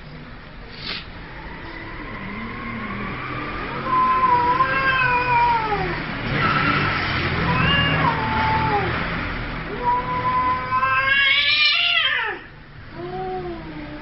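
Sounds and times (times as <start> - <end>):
cat yowling: 3.7 - 6.0, 7.4 - 9.0, 9.7 - 14.0.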